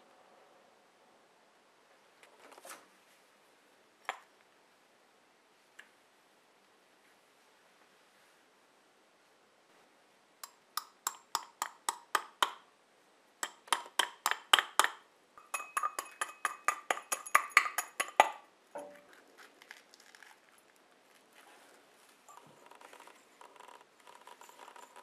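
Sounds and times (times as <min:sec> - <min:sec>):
glass clinking: 0:14.2 - 0:19.0
crumbling and scraping in glass: 0:22.3 - 0:25.0.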